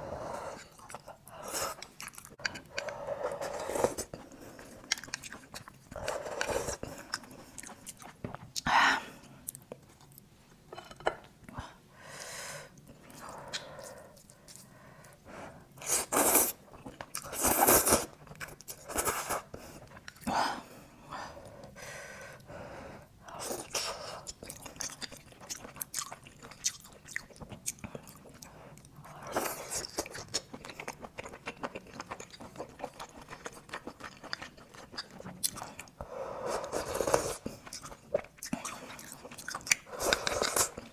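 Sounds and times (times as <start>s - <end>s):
wet chewing and biting: 1.7s - 3.0s, 4.6s - 8.6s, 29.7s - 35.9s, 37.4s - 40.9s.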